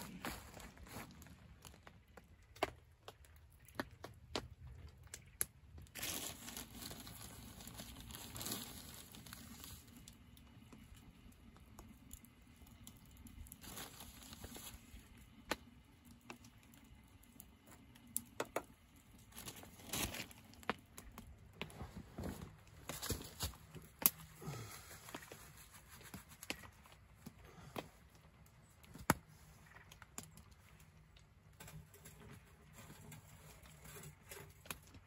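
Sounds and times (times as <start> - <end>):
bag crinkling and tearing: 5.9 - 10.1, 13.5 - 15.0, 19.2 - 20.6
small clicks and knocks: 15.4 - 21.8.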